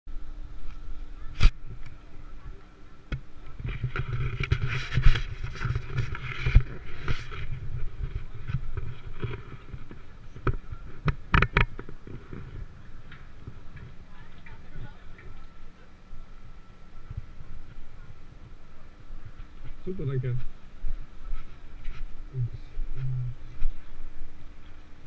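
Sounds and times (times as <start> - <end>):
muffled handling rumble: 0.2 - 25.0
sharp clicks and knocks: 8.5 - 12.5.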